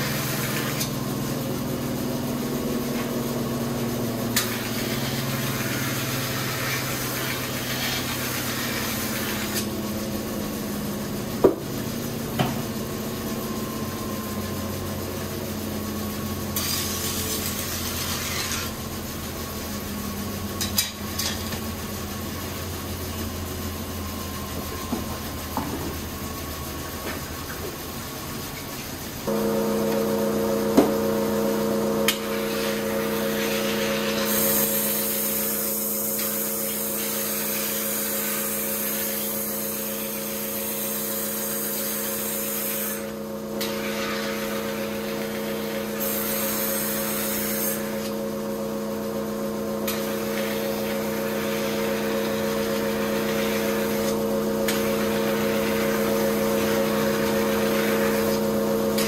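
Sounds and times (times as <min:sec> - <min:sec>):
sharpening wheel humming: 0:04.4 - 0:09.8, 0:16.6 - 0:18.9, 0:29.3 - 0:48.2, 0:49.9 - 0:59.0
blade grinding hiss: 0:16.6 - 0:18.8, 0:32.0 - 0:48.2.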